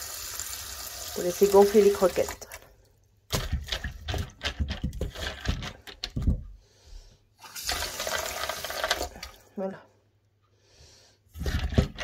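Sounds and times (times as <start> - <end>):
tap water running into bowl: 0.0 - 2.7, 7.4 - 9.4
kibble rattling in metal bowl: 3.4 - 6.0.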